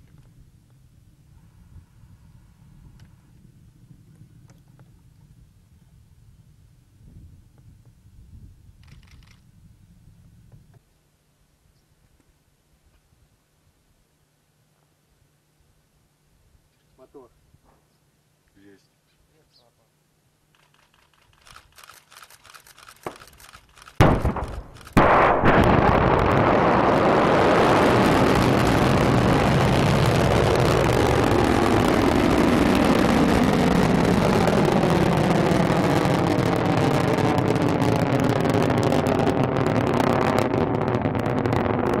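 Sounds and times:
rocket engine roar: 24.0 - 42.0
sudden blast: 24.0 - 42.0.

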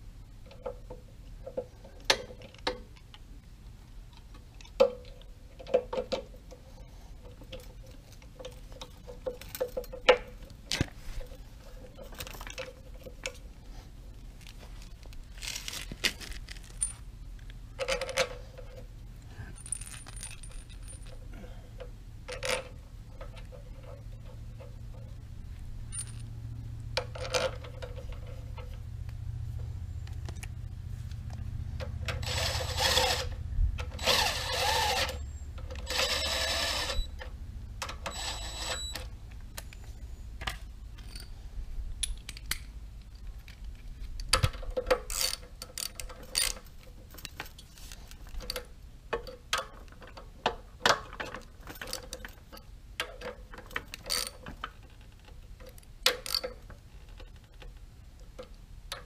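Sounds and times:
metal tools clinking: 19.5 - 21.3, 25.9 - 26.3, 41.0 - 41.4.

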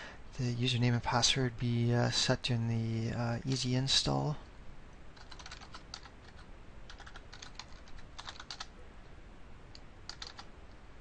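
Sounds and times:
typing on computer keyboard: 5.2 - 8.7, 10.1 - 10.5.

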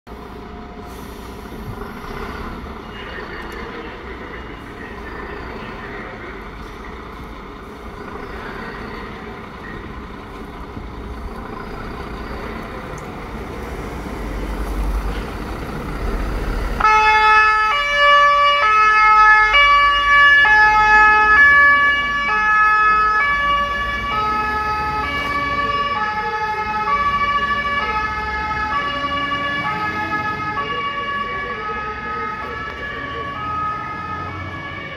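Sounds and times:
fire engine rumbling: 0.1 - 34.9
two-tone siren: 16.8 - 34.9.

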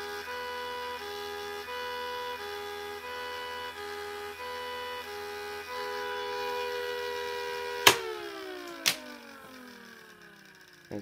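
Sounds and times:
siren chord winding down: 0.0 - 11.0
power switch click: 7.8 - 9.2.

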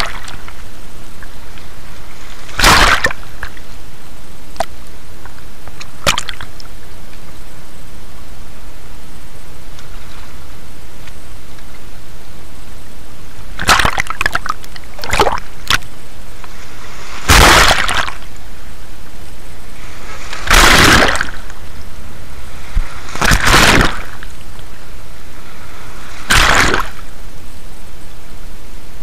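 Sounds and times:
waves splashing on rocks: 0.0 - 0.6, 1.5 - 3.8, 13.5 - 18.7, 19.6 - 27.3.

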